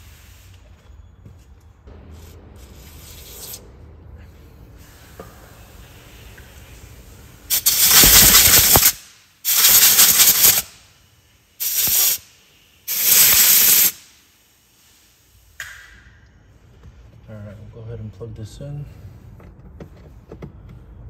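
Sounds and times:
compressed air blasts hissing: 0.0 - 0.6, 2.1 - 16.0.

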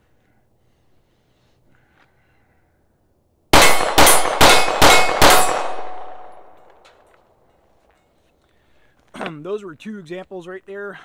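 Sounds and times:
handgun shots on steel target: 3.6 - 6.9.

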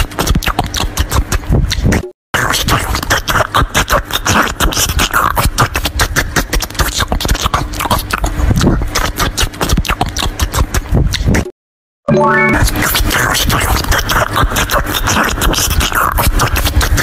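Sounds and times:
crunchy chewing: 0.0 - 11.5, 12.8 - 17.0.

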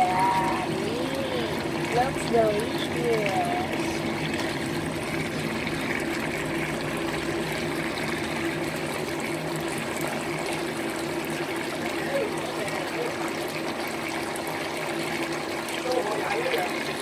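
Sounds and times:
sauce bubbling and sizzling: 0.0 - 17.0.

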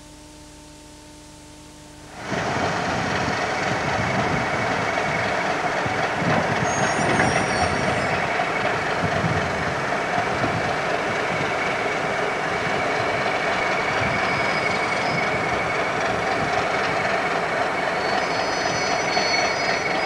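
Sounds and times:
diesel locomotive engine running: 2.1 - 20.0
faint high squeal: 6.5 - 8.8, 13.6 - 15.9, 17.8 - 20.0.

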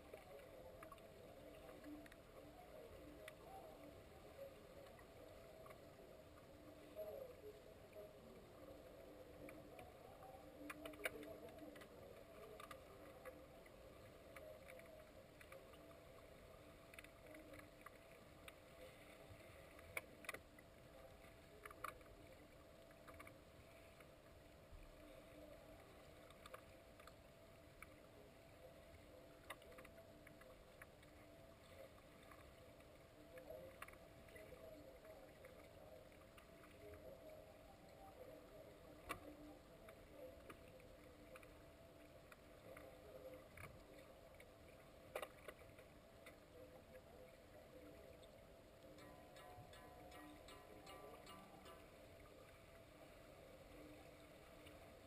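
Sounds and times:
faint underwater clicks: 0.0 - 55.0
underwater low hum: 0.0 - 55.0.

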